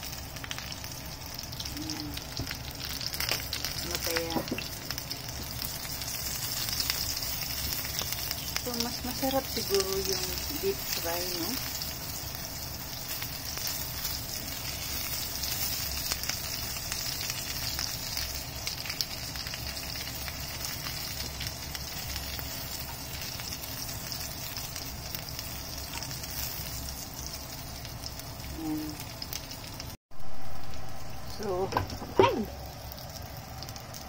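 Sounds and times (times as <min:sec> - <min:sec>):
oil sizzling and crackling: 0:00.0 - 0:34.0.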